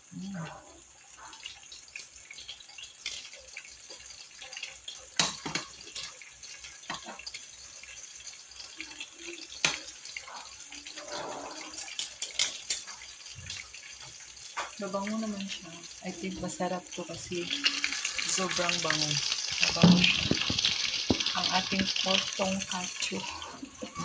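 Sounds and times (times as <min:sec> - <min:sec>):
meat sizzling in hot oil: 0:00.0 - 0:24.0
metal tongs clicking on a pan: 0:11.8 - 0:12.9.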